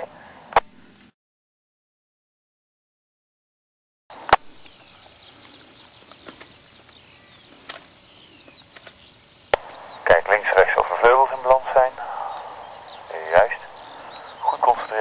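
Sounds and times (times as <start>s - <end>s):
birds chirping: 4.1s - 15.0s.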